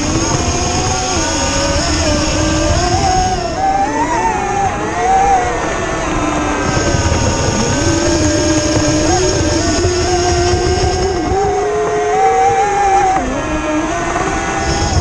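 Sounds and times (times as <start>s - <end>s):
electric motor high whine: 0.0s - 15.0s
water rushing: 0.0s - 15.0s.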